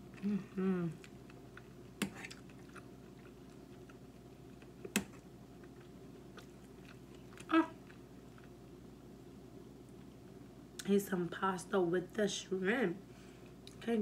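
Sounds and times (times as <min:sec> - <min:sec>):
person chewing food: 0:00.0 - 0:08.8
person humming briefly: 0:00.2 - 0:01.0.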